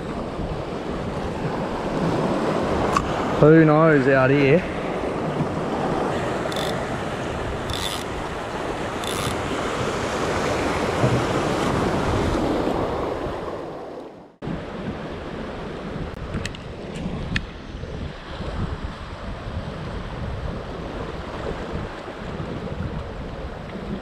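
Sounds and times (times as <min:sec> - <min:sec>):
faint ticks: 0:06.5 - 0:06.8, 0:09.0 - 0:09.4
wind on microphone: 0:14.4 - 0:24.0.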